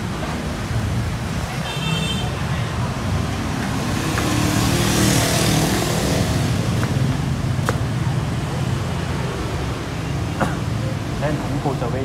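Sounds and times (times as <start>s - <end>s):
traffic engine rumble: 0.0s - 12.0s
vehicle passing: 2.8s - 9.8s.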